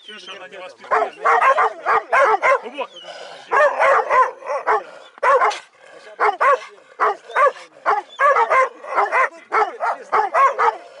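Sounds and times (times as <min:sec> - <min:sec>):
dog barking and yelping: 0:00.9 - 0:02.7, 0:03.5 - 0:05.6, 0:06.2 - 0:10.8.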